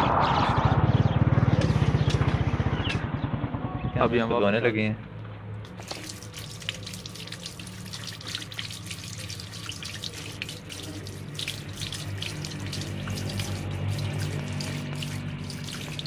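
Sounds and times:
hands rubbing and rinsing radish: 5.7 - 16.0
tap water running into sink: 5.7 - 16.0.

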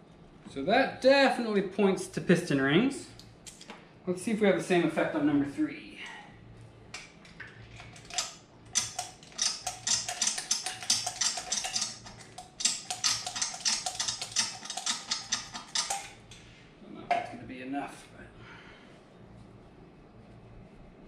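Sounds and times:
hand tools clicking on metal: 7.8 - 16.4.

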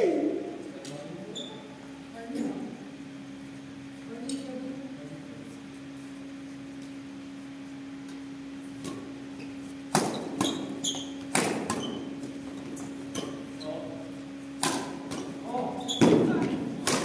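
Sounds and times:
steady low hum: 0.0 - 17.0
shoe squeaks on court: 9.4 - 12.2, 15.8 - 16.3
rackets hitting shuttlecock: 9.9 - 13.4, 14.6 - 15.4, 16.0 - 17.0.

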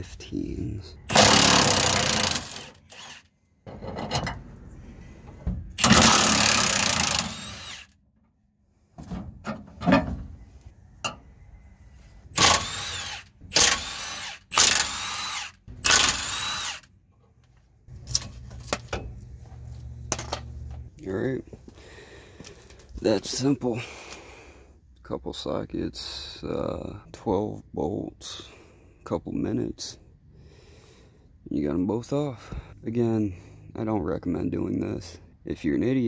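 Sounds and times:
impact wrench bursts: 1.1 - 3.3, 5.8 - 8.0, 12.3 - 16.9.

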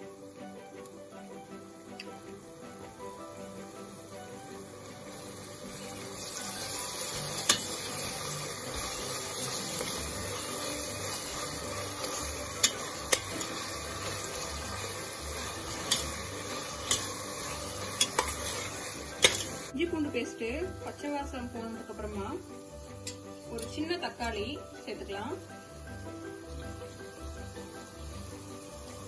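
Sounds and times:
food sizzling in oil: 0.0 - 29.0
spoon clinking against pot: 19.2 - 19.6.

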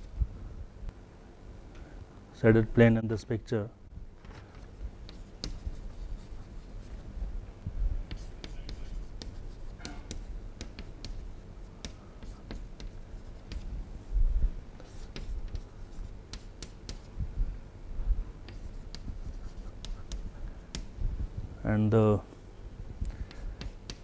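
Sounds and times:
chalk writing on a chalkboard: 4.3 - 7.2, 8.0 - 14.1, 14.8 - 17.2, 18.4 - 21.0, 23.1 - 24.0.

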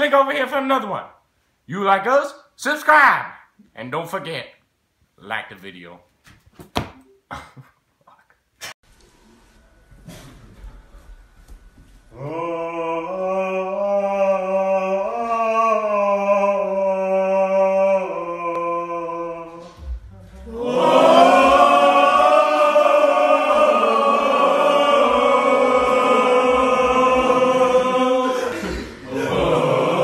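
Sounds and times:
group of men singing a cappella: 12.1 - 19.9, 20.5 - 30.0.

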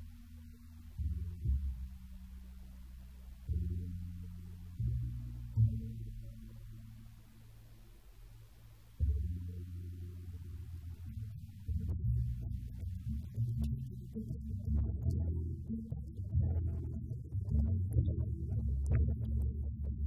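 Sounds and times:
deep bass notes of instrumental music: 0.0 - 20.0.

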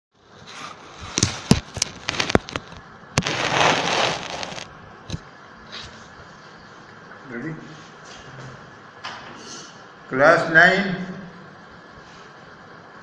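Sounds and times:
rustling scrape: 0.4 - 4.7.

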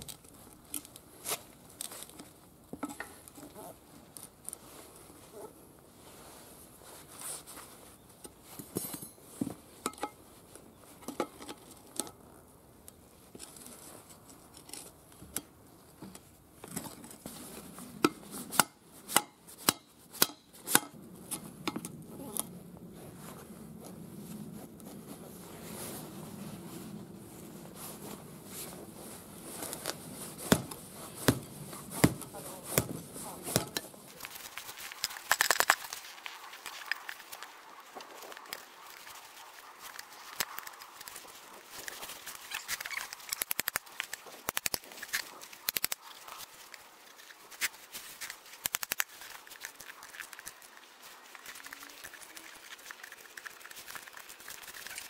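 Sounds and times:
hand tools clinking on steel rim: 8.6 - 9.3.

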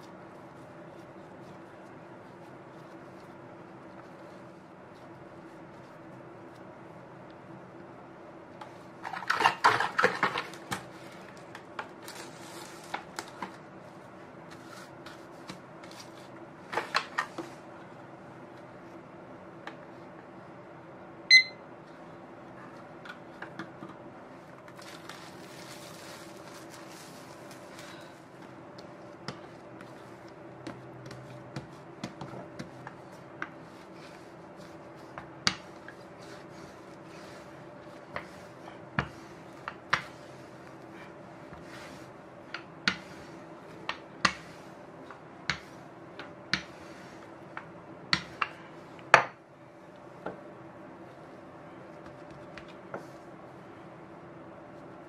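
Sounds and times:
kitchen timer beep: 21.3 - 21.6
cling wrap crinkling: 24.6 - 28.2.

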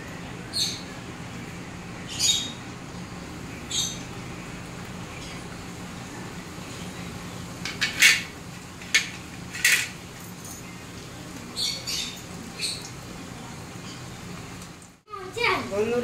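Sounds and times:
steady low hum: 0.0 - 15.4
steel utensils clinking: 7.6 - 10.7.

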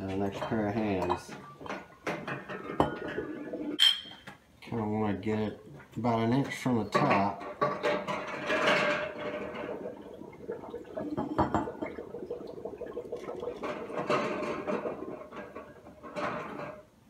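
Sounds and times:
glass bottles clinking: 0.2 - 4.3, 6.9 - 12.1
beer pouring into bottles: 4.8 - 16.9.

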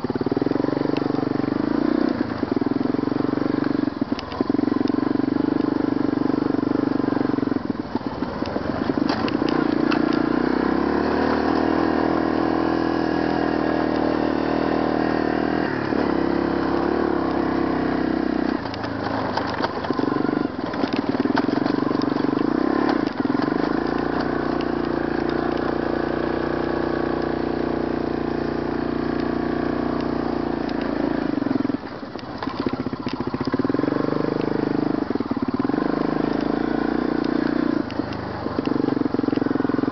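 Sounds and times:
atv engine running: 0.0 - 39.9
knocks and rattles over bumps: 7.8 - 10.4, 18.4 - 26.3, 30.0 - 34.5.

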